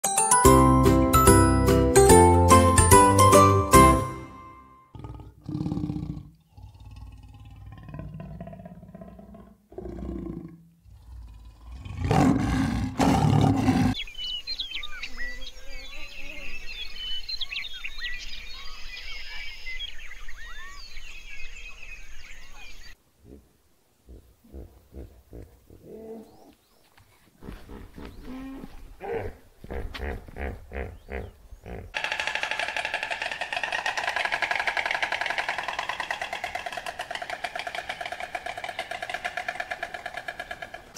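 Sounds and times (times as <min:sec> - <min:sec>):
deep animal roars: 0:04.9 - 0:14.0
constant high hiss: 0:20.8 - 0:28.0.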